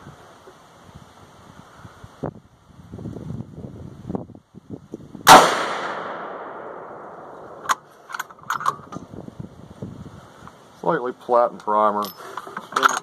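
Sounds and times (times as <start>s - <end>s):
rifle shot with echo: 5.3s - 7.8s
metallic bolt clicks: 7.6s - 9.0s.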